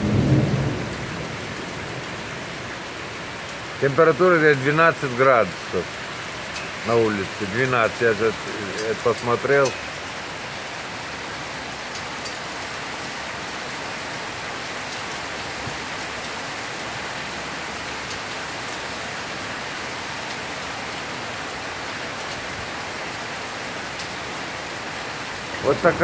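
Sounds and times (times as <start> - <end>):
rain hissing on pavement: 0.0 - 26.0
faint drip ticks: 5.8 - 10.0, 11.9 - 12.4.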